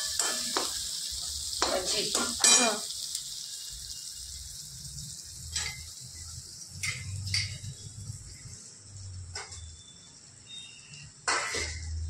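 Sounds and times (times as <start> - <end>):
steel plate clinking on pan: 0.0 - 0.7, 2.2 - 2.8, 11.2 - 11.9
food sizzling in a pan: 0.0 - 12.0.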